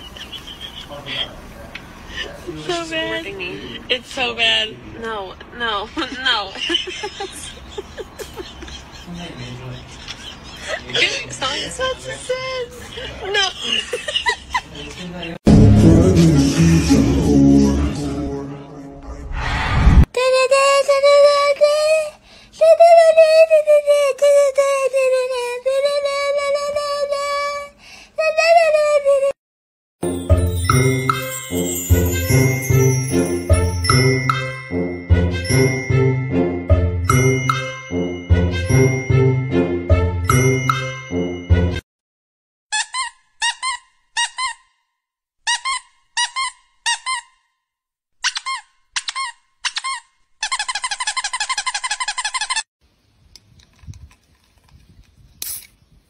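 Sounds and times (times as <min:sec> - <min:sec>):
high-pitched voice chanting: 0:15.5 - 0:19.4
rubber squeaky toy squeaks: 0:42.7 - 0:44.8, 0:45.4 - 0:47.5, 0:48.2 - 0:52.6.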